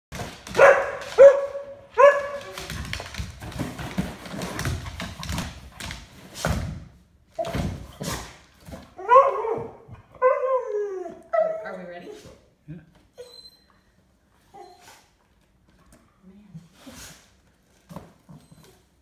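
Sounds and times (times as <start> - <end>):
dog barking: 0.5 - 2.6.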